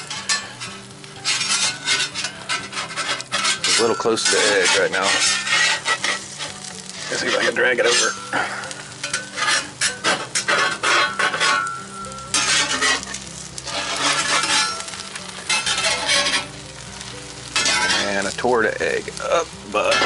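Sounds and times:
eggs sizzling: 0:00.0 - 0:20.0
metal spatula scraping griddle: 0:00.0 - 0:20.0.

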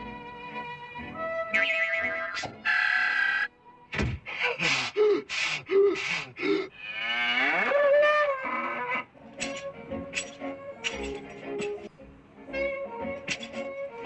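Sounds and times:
bellowing moo: 0:06.8 - 0:09.1.

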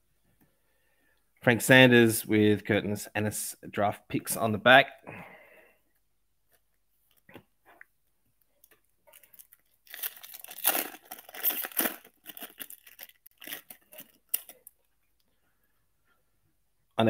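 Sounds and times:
foil wrapper tearing and crinkling: 0:09.1 - 0:14.7.

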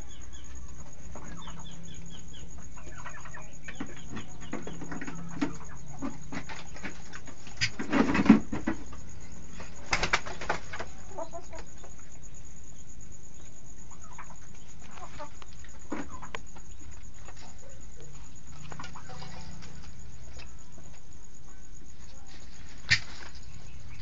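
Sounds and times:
faint turkey calls: 0:00.0 - 0:08.0, 0:13.8 - 0:24.0
turkey wings flapping: 0:04.6 - 0:11.0, 0:22.3 - 0:24.0.

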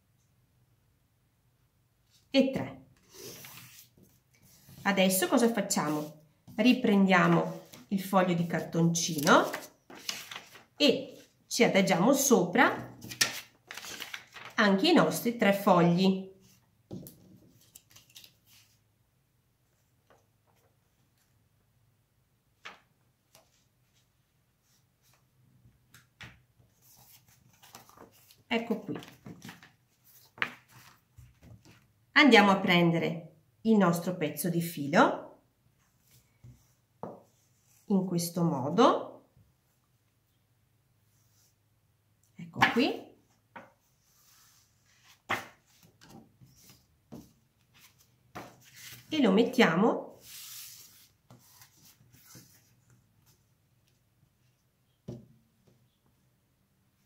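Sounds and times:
paper rustling: 0:03.1 - 0:04.8, 0:07.2 - 0:10.8, 0:13.0 - 0:14.6, 0:17.5 - 0:18.8, 0:26.7 - 0:31.9, 0:43.6 - 0:49.1.

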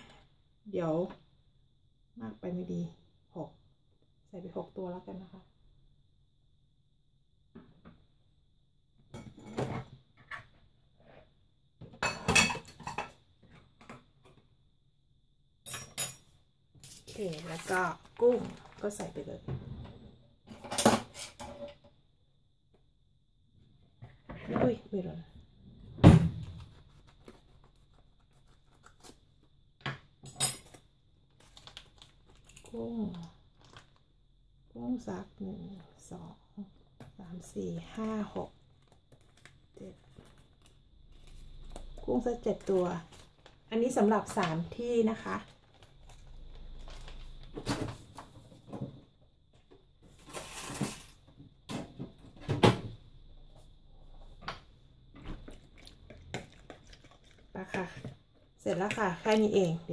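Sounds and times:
plastic bag rustling: 0:50.1 - 0:51.2.

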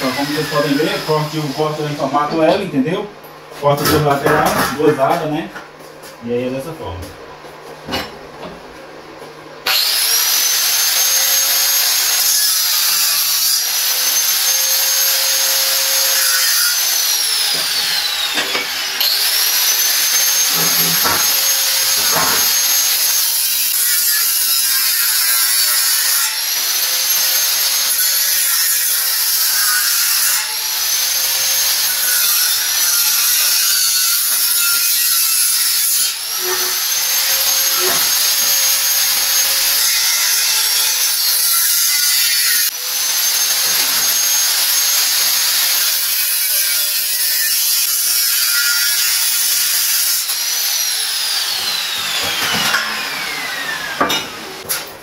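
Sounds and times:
grinder motor whine: 0:00.0 - 0:02.0, 0:09.6 - 0:24.3, 0:26.3 - 0:28.4, 0:30.4 - 0:34.4, 0:36.1 - 0:54.7
angle grinder cutting steel: 0:00.0 - 0:02.6, 0:09.7 - 0:55.0.

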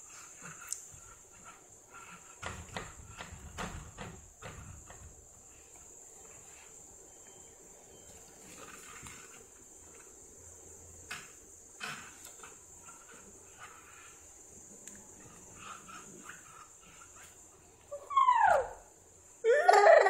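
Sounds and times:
hands slapping glass door: 0:02.4 - 0:05.2.

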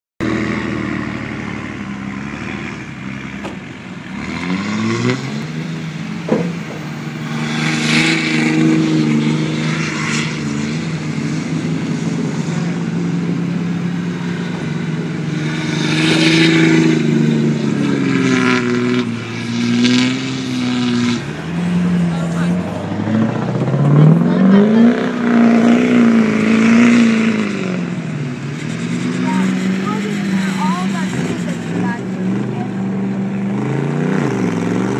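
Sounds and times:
diesel truck engine revving: 0:00.2 - 0:34.9
bursts of rushing noise: 0:06.2 - 0:10.2.

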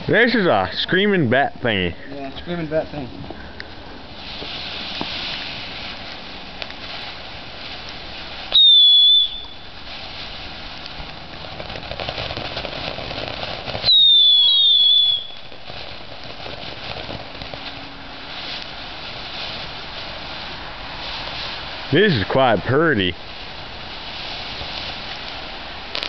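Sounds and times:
firework hissing sparks: 0:00.0 - 0:26.0
firework whistling scream: 0:06.8 - 0:15.7, 0:23.6 - 0:26.0.

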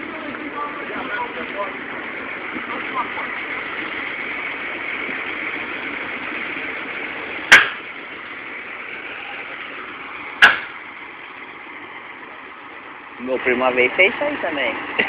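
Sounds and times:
vehicle engine idling: 0:00.0 - 0:15.0
sharp loud bangs: 0:07.5 - 0:07.9, 0:10.4 - 0:10.8.

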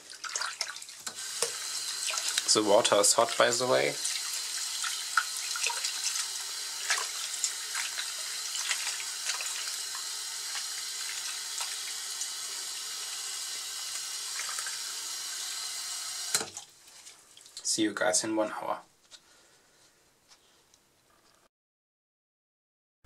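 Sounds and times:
hand swishing water: 0:00.0 - 0:01.0, 0:04.8 - 0:09.8
tap water pouring into basin: 0:00.0 - 0:17.7.

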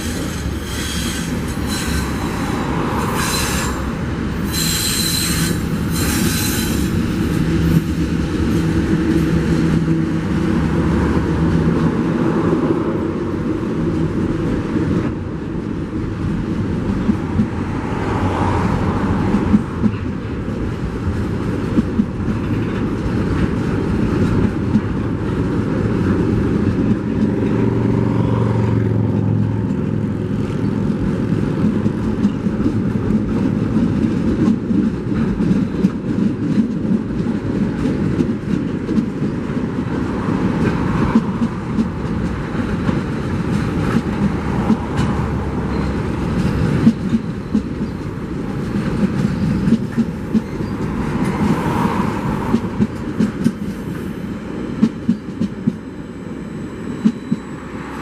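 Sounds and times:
freight wagons rumbling on rails: 0:00.0 - 0:58.0
wheels clacking over rail joints: 0:28.9 - 0:53.8.

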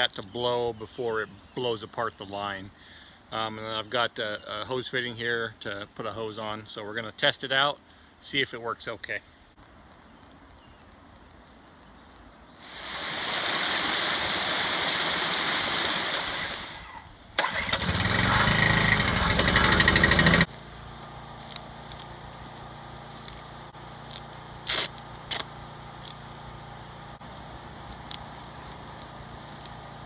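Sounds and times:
rushing hiss: 0:12.6 - 0:16.8
portable generator engine running: 0:17.4 - 0:24.1
steady low hum: 0:19.0 - 0:30.0.

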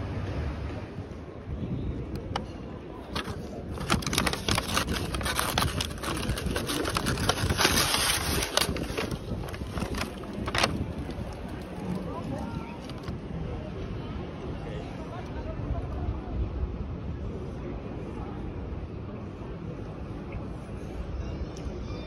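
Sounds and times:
paper wrapping crinkling: 0:03.0 - 0:13.1.

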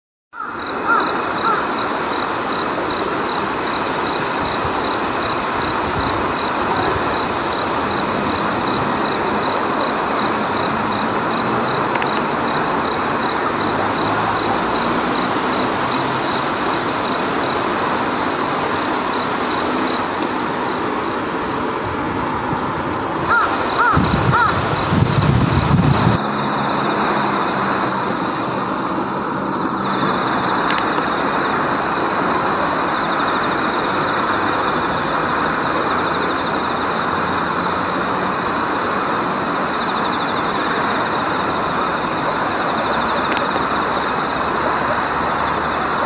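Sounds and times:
crow cawing: 0:00.4 - 0:01.7, 0:23.2 - 0:24.8
constant high-pitched hum: 0:00.4 - 0:46.0.

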